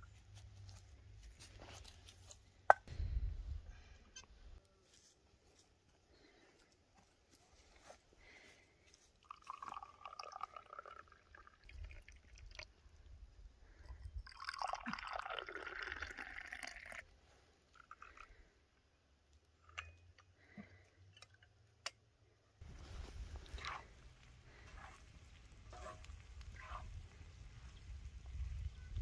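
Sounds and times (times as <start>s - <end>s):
hot tea pouring into glass cups: 9.2s - 12.7s, 13.8s - 17.1s.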